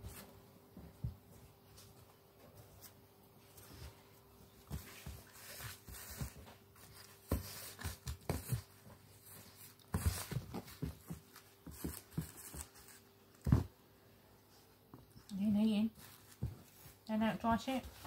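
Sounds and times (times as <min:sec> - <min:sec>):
puppy thumping and scuffling: 0:00.0 - 0:13.7.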